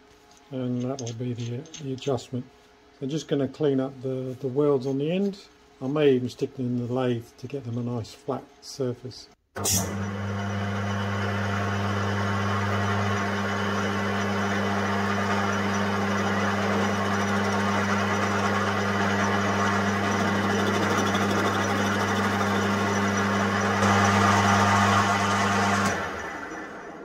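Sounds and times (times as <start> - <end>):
lathe tool cutting metal: 9.7 - 27.0
metal lathe humming: 9.8 - 27.0.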